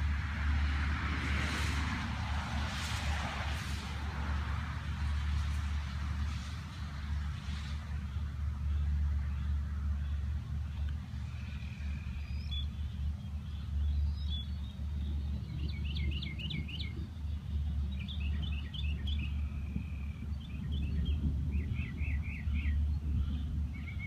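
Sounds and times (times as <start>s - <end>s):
steady low rumble: 0.0s - 24.0s
small birds chirping: 6.4s - 24.0s.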